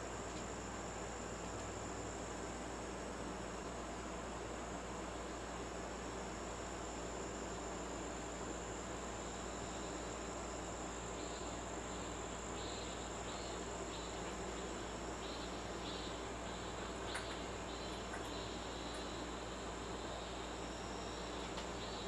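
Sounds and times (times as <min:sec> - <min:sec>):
low room hum: 0:00.0 - 0:22.0
insects chirping: 0:04.8 - 0:22.0.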